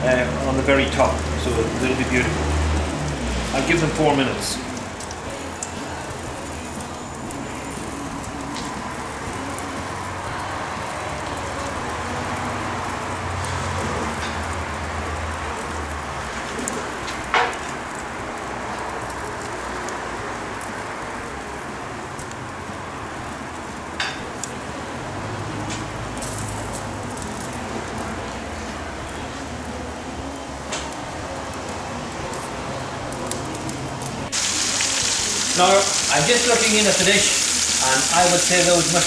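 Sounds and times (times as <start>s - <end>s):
wood fire hissing: 0.0s - 39.0s
logs crackling: 25.5s - 39.0s.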